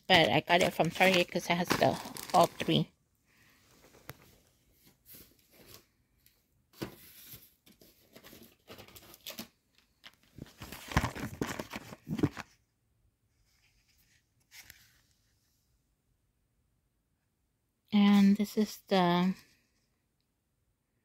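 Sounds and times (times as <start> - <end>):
packaging rustling and crinkling: 0.1 - 2.8, 6.8 - 12.6.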